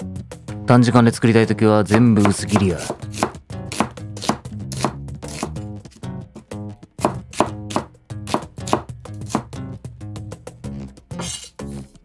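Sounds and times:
background music: 0.0s - 12.0s
knife slicing onion on board: 1.9s - 5.7s, 6.4s - 9.6s, 11.1s - 12.0s.

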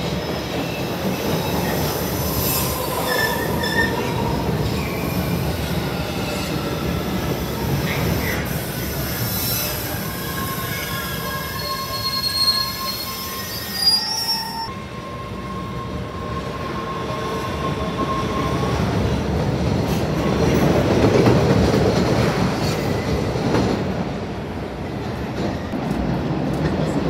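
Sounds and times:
train wheels squealing: 0.0s - 19.2s
subway train rumbling past: 0.0s - 27.0s.

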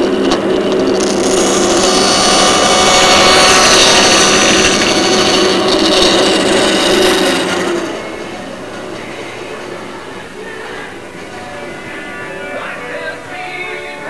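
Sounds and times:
power tool working wood: 0.0s - 9.2s.

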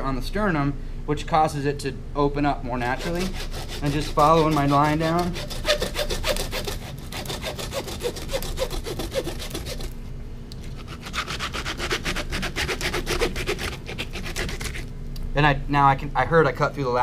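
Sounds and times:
hand saw cutting bone: 2.8s - 10.0s, 10.6s - 14.9s.

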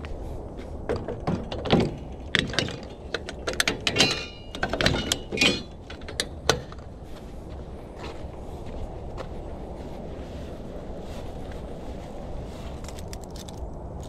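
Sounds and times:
metal clanking and rattling: 0.9s - 6.9s
metallic ringing: 2.0s - 6.3s.

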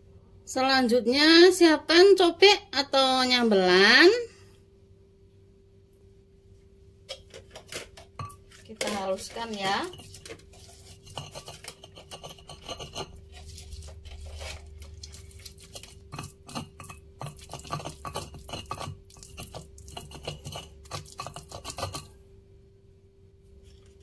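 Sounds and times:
stone pestle grinding in mortar: 7.6s - 22.2s.

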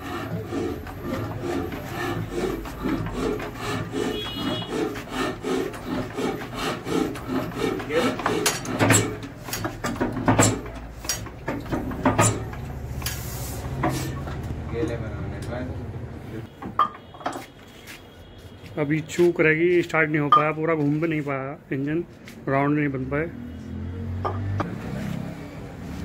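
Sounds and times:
diesel engine hand-cranking: 0.0s - 15.6s
sharp engine knocks: 7.1s - 13.1s.

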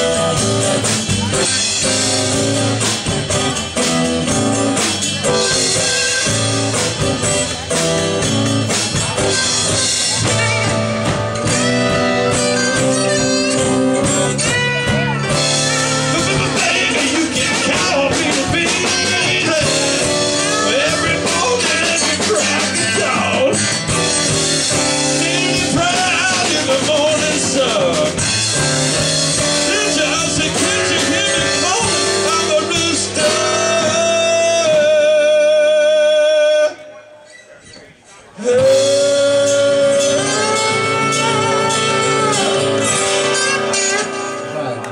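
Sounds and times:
lead guitar bending notes: 0.0s - 35.9s, 38.4s - 44.9s
drum kit: 0.0s - 36.0s, 38.3s - 44.9s
electric bass: 0.0s - 36.2s, 38.4s - 44.9s
blues-rock band playing: 0.0s - 36.8s, 38.2s - 44.9s
acoustic guitars strumming: 0.0s - 44.9s.

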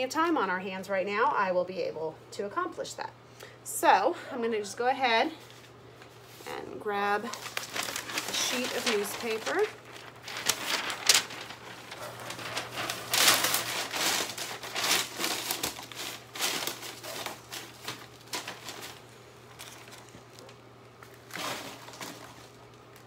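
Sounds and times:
newspaper rustling and crinkling: 5.5s - 23.0s.

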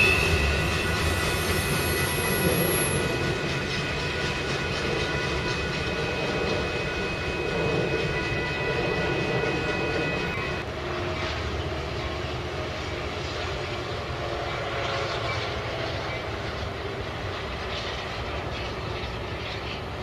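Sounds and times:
chord of high steady tones: 0.0s - 10.7s
trains rumbling on rails: 0.0s - 20.0s.

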